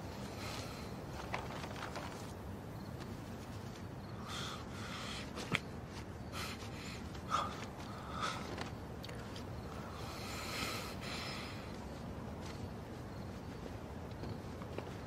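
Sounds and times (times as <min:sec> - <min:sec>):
bandage rustling: 0:00.0 - 0:04.0, 0:05.2 - 0:09.8, 0:11.1 - 0:15.0.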